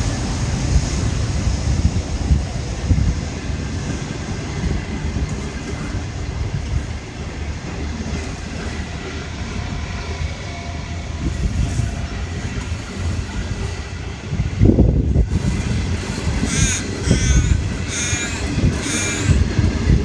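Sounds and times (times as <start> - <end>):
train wheels rumbling on rails: 0.0 - 20.0.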